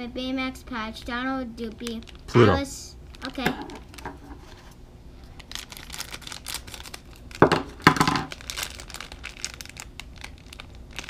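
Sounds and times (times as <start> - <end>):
foil bag crinkling: 1.6 - 11.0
foil ripping: 5.4 - 11.0.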